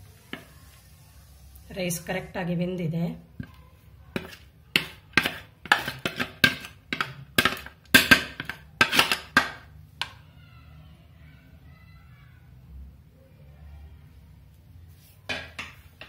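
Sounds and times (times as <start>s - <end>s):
spatula tapping metal skimmer: 4.2s - 10.1s.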